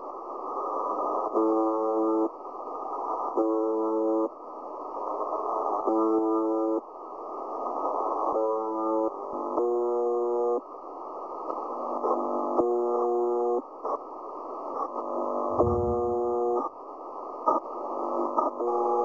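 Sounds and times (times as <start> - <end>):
harsh radio buzz signal: 12.1 - 13.6, 15.1 - 16.7, 18.6 - 19.0
radio static: 15.6 - 16.6.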